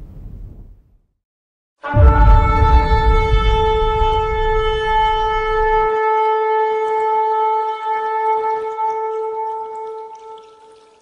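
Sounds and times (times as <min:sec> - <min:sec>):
long horn blast: 0:01.8 - 0:10.5
deep rumble: 0:01.9 - 0:06.0.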